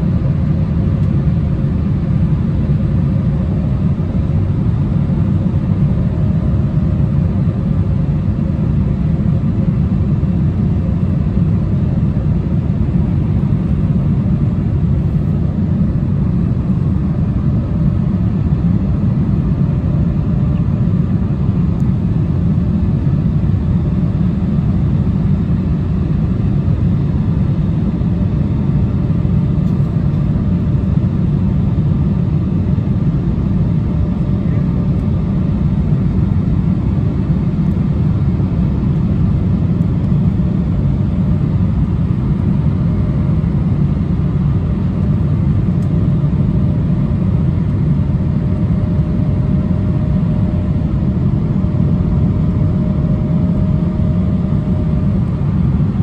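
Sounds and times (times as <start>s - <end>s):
airliner cabin engine rumble: 0.0s - 56.0s
faint steady whine: 0.0s - 56.0s.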